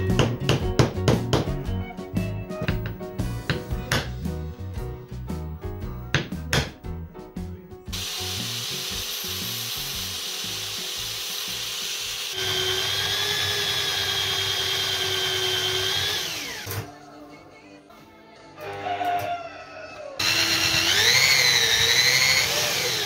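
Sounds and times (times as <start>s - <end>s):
cordless drill whining: 7.9s - 16.9s, 20.2s - 23.0s.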